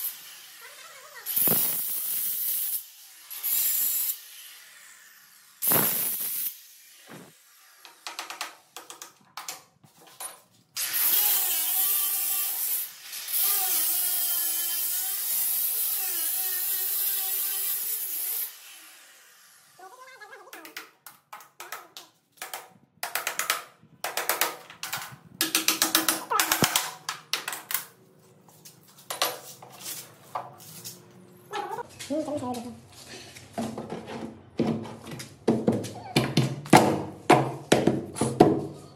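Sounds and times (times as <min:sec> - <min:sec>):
electric cutter grinding stone: 0:10.8 - 0:19.8.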